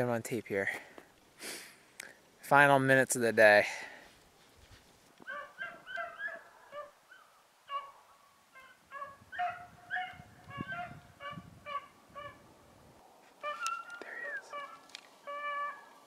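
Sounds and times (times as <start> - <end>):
hound yelping barks: 5.2 - 12.4, 13.4 - 16.0.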